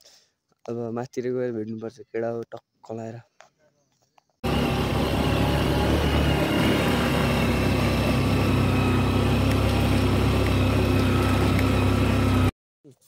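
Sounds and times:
motorcycle engine running: 0:04.4 - 0:12.5
wind and road noise: 0:04.4 - 0:12.5.

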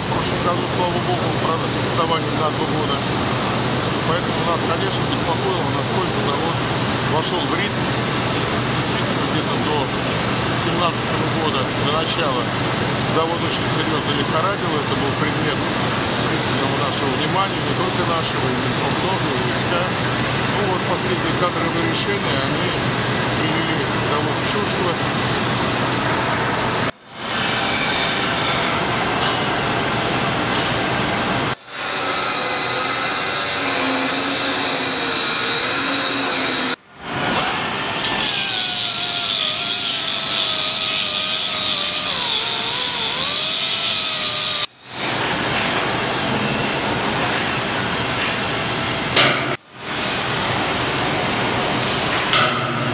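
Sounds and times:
angle grinder grinding steel: 0:31.6 - 0:44.7.

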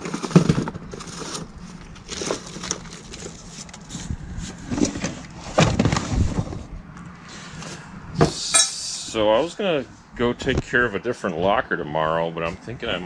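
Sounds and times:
box being lifted: 0:00.0 - 0:06.7
rummaging through cardboard boxes: 0:00.0 - 0:06.7.

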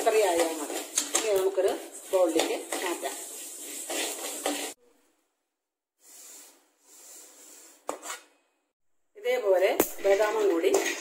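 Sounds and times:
seeds hissing as spatula stirs: 0:00.0 - 0:04.8.

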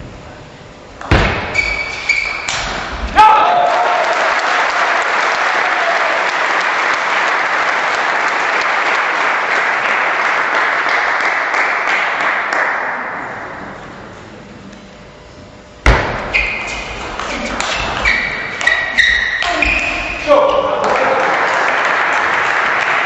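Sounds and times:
sharp knock: 0:01.0 - 0:01.8, 0:15.8 - 0:16.9
spectators applauding: 0:03.2 - 0:13.2, 0:20.8 - 0:23.0.

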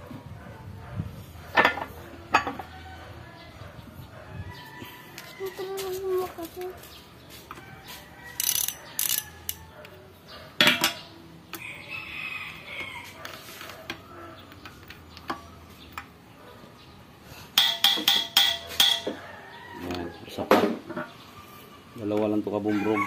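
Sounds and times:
socket wrench ratcheting clicks: 0:08.4 - 0:09.6.

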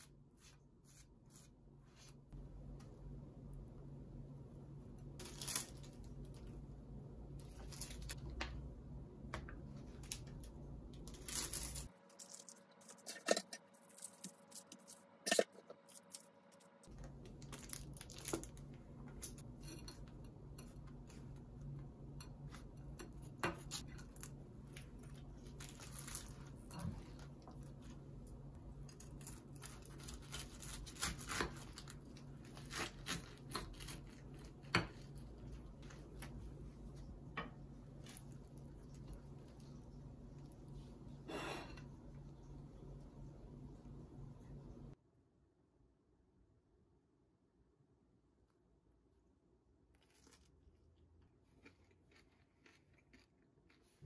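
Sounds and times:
soft food rustles and crackles: 0:09.4 - 0:44.8, 0:49.8 - 0:54.0.

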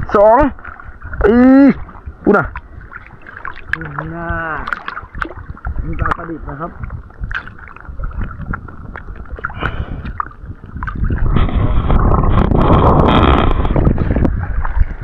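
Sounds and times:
water sloshing and splashing: 0:00.0 - 0:15.0
small water drips: 0:01.9 - 0:06.3.

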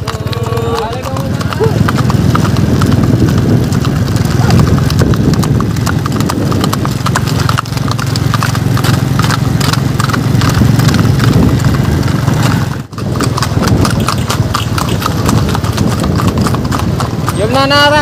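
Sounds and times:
horses hooves on paved road: 0:00.0 - 0:18.0.

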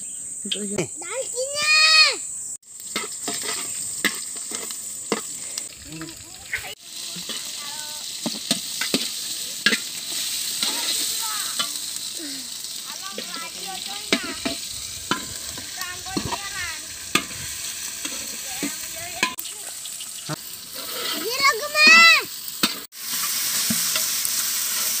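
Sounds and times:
onions sizzling in oil: 0:00.4 - 0:25.0
metal ladle scraping pot: 0:02.9 - 0:06.1, 0:13.2 - 0:19.4, 0:20.7 - 0:21.4.

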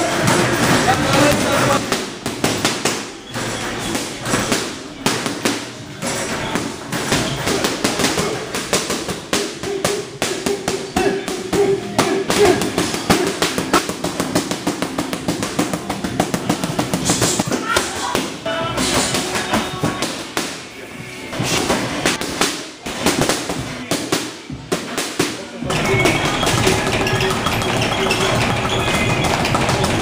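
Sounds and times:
boxing gloves hitting mitts: 0:00.0 - 0:20.6, 0:21.3 - 0:30.0
background music: 0:11.0 - 0:22.6.

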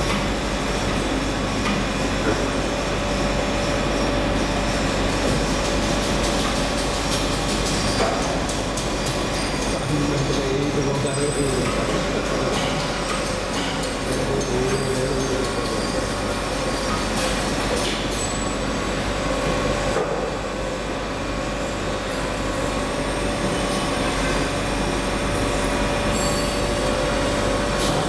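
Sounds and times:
grinding machines humming and whining: 0:00.0 - 0:28.0.

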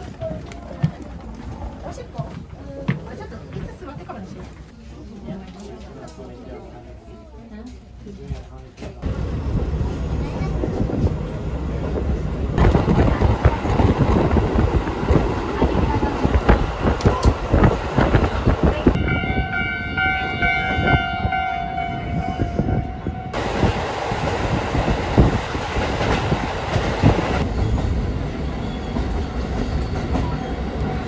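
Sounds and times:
level-crossing warning signal ringing: 0:19.0 - 0:23.4
train wheels clattering on rails: 0:23.3 - 0:31.0.

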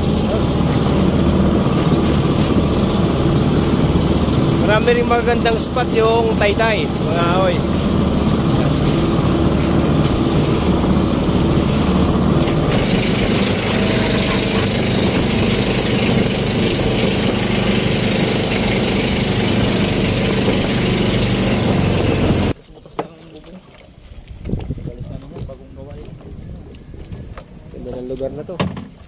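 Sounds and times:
boat engine running: 0:00.0 - 0:22.6
wind and water hiss: 0:00.0 - 0:29.0.

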